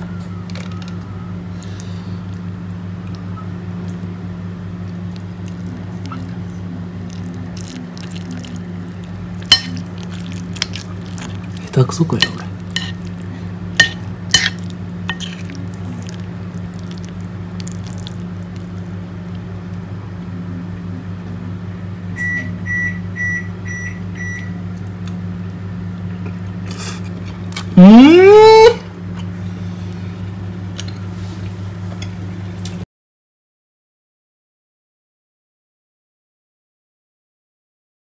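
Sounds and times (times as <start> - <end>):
steady low hum: 0.0 - 32.8
kitchen appliance beeping: 22.2 - 24.6, 27.8 - 28.6.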